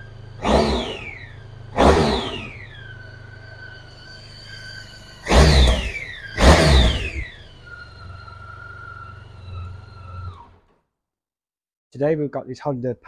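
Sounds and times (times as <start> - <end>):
low hum: 0.0 - 10.7.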